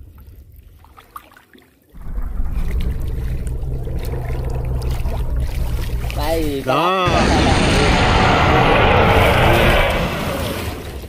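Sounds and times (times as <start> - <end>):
boat engine humming: 2.0 - 7.3.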